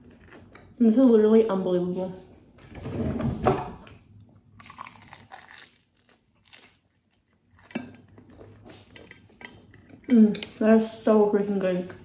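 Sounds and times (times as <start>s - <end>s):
chewing and crunching food: 0.0s - 1.2s, 4.0s - 11.0s.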